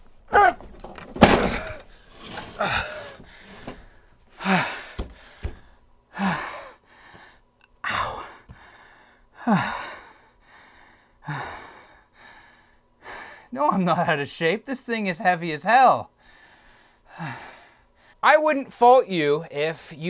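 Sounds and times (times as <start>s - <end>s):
man panting: 2.6s - 13.5s, 16.2s - 18.2s.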